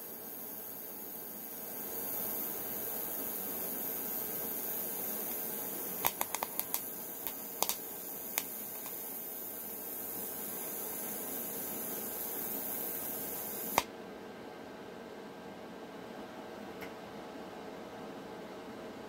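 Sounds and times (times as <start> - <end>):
welding arc hissing: 0.0 - 13.9
welder click: 4.9 - 9.1, 13.4 - 13.9.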